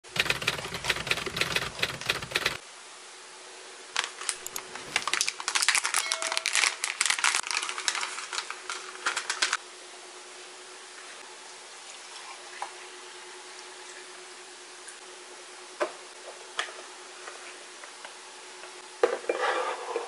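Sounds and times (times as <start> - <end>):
plastic pouch crinkling: 4.0 - 9.6.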